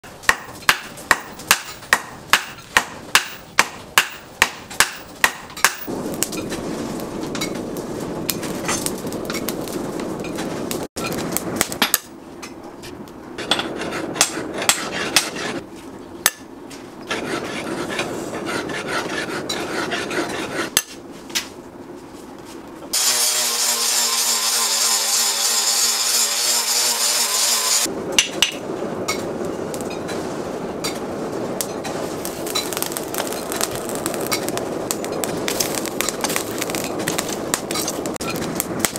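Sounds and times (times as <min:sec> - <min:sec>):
hammers striking metal on anvil: 0:00.2 - 0:05.9
metal scraping and rasping: 0:13.4 - 0:15.6, 0:17.1 - 0:21.0, 0:22.9 - 0:27.9.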